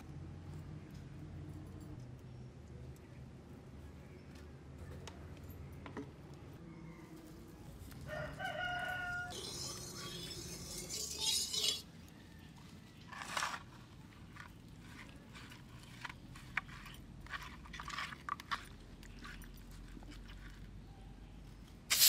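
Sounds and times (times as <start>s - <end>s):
rooster crowing: 6.6s - 9.6s.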